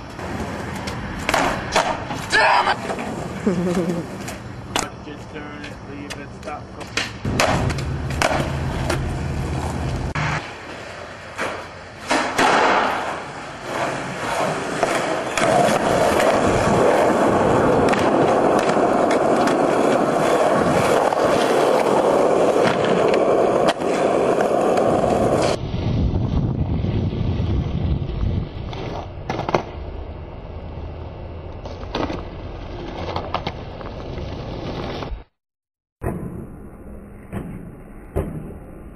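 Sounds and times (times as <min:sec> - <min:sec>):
skateboard clacking on ground: 0:00.0 - 0:25.6
skateboard wheels grinding on asphalt: 0:00.0 - 0:35.3.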